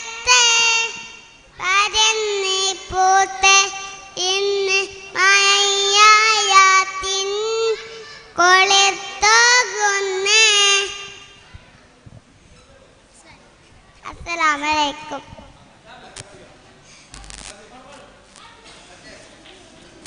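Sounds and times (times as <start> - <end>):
boy singing into a microphone: 0.0 - 11.2.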